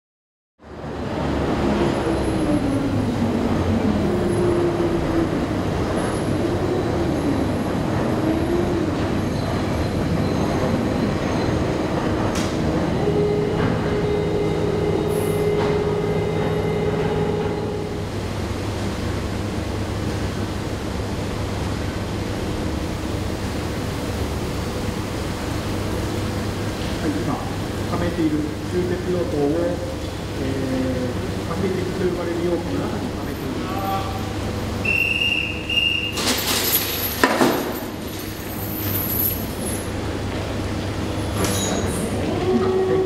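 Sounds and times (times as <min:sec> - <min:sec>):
steady tone: 0:12.6 - 0:18.8
wavering tone: 0:12.7 - 0:18.1.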